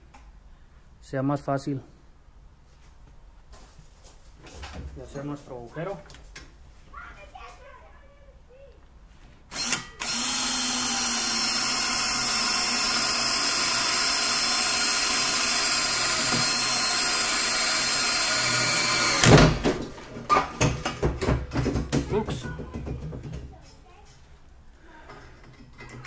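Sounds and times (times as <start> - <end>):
cordless drill boring through steel: 9.5 - 19.4
knocks: 19.1 - 23.6.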